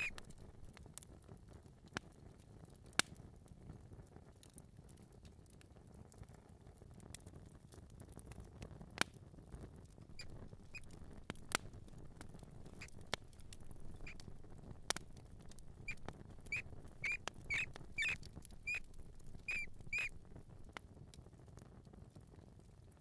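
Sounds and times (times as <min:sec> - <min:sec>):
mouse squeaking: 0:00.0 - 0:00.6, 0:10.2 - 0:20.6
soft scurrying patter: 0:00.0 - 0:00.8, 0:10.1 - 0:20.8
sharp clicks: 0:10.2 - 0:20.8.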